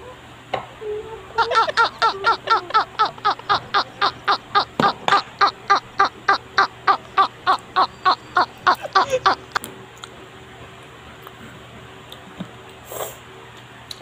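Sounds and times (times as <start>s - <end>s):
high-pitched laughter: 0.9s - 9.6s.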